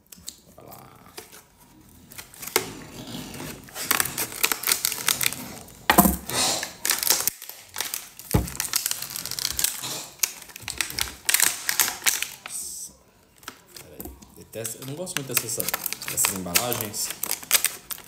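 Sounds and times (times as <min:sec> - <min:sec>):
plastic crackling: 0:01.2 - 0:12.6, 0:13.3 - 0:18.0
loud knocks: 0:08.4 - 0:08.6.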